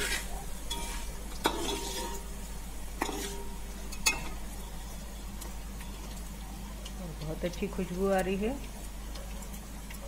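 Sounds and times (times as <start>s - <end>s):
spoon scraping steel pot: 0.0s - 2.2s, 3.0s - 4.3s
seeds sizzling in oil: 0.0s - 10.0s.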